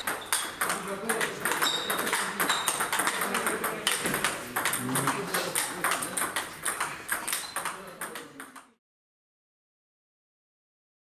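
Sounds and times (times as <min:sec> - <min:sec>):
table tennis ball clicks: 0:00.0 - 0:08.8.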